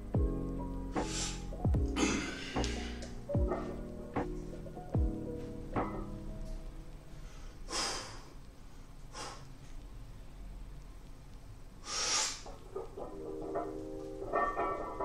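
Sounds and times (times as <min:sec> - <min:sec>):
person breathing forcefully: 0:01.0 - 0:03.0, 0:07.1 - 0:09.5, 0:11.8 - 0:12.6.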